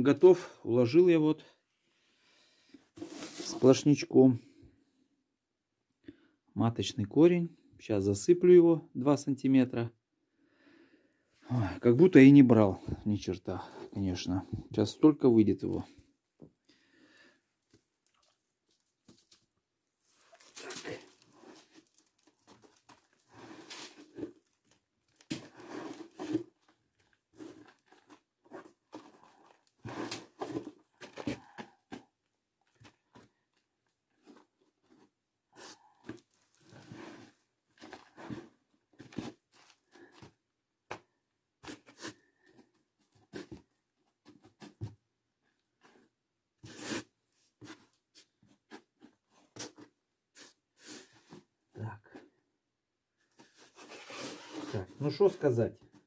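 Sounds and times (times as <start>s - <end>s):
scraping in foam box: 25.3s - 26.6s, 53.5s - 55.0s.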